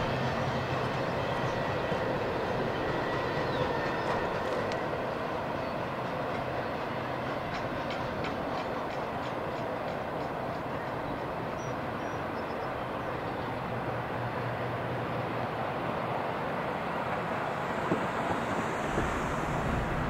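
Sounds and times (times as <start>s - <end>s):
train wheels rumbling on rails: 0.0s - 20.0s
wheels clicking over rail joints: 3.0s - 12.6s.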